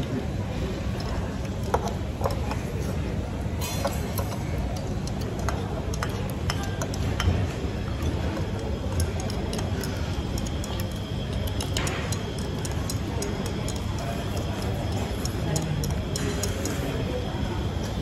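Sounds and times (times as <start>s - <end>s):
hubbub of a busy food court: 0.0s - 18.0s
chopsticks clinking against bowls: 3.6s - 17.4s.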